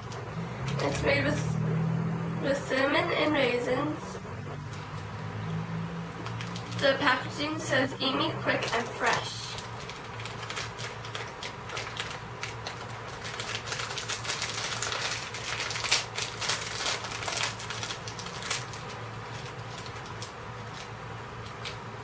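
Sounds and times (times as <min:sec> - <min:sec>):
plastic packaging crinkling: 0:06.2 - 0:07.0, 0:08.6 - 0:22.0.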